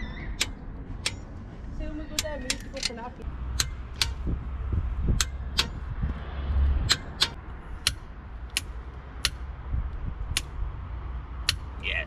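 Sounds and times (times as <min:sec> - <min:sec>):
torque wrench clicking: 0:02.1 - 0:04.2, 0:05.1 - 0:05.8.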